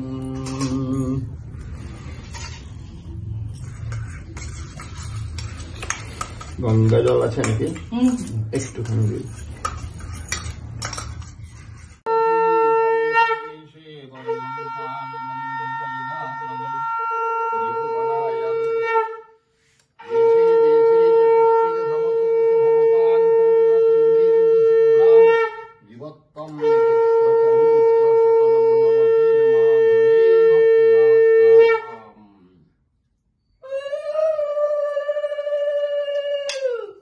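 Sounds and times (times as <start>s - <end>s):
conch shell blasts: 12.0s - 25.8s, 26.5s - 32.0s.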